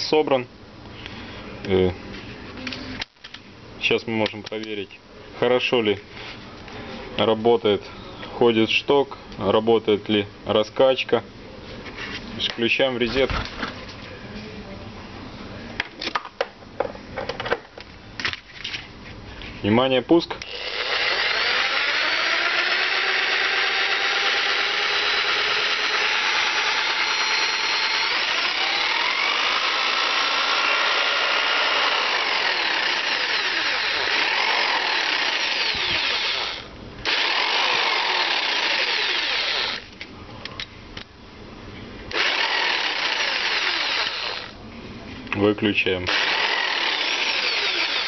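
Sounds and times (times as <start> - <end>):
electric jigsaw motor running: 20.5 - 39.9, 42.1 - 44.5, 46.1 - 48.0.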